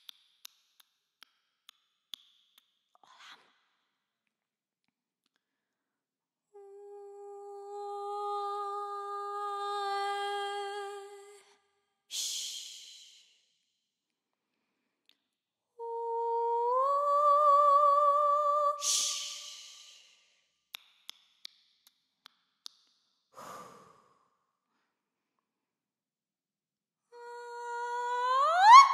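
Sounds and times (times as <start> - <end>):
woman humming long notes: 6.5 - 11.3, 15.8 - 18.8.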